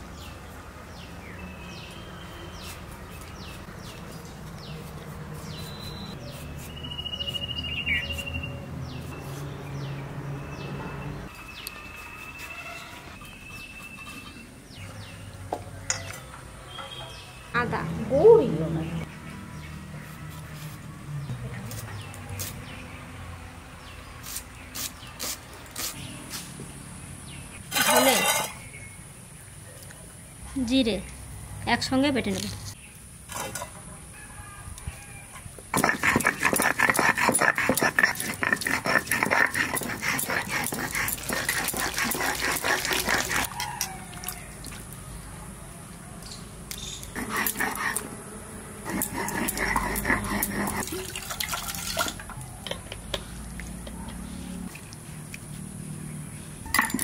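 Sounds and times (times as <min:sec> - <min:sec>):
small birds chirping: 0:00.1 - 0:20.6, 0:35.7 - 0:48.1
blade scraping ginger: 0:04.7 - 0:07.5, 0:35.7 - 0:44.0, 0:46.8 - 0:48.2, 0:48.8 - 0:50.9
stone roller grinding on stone slab: 0:35.8 - 0:43.6, 0:47.2 - 0:48.1, 0:48.8 - 0:50.9
water pouring into metal bowl: 0:48.9 - 0:52.2.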